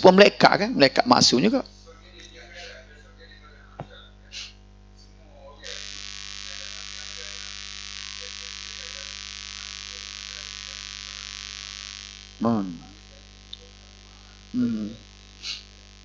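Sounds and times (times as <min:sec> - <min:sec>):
electrical mains hum: 0:00.0 - 0:16.0
hiss: 0:15.4 - 0:15.8.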